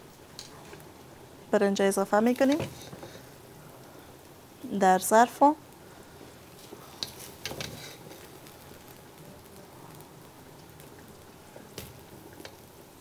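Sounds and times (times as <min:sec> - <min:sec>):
rice pattering onto plate: 0:06.5 - 0:12.7.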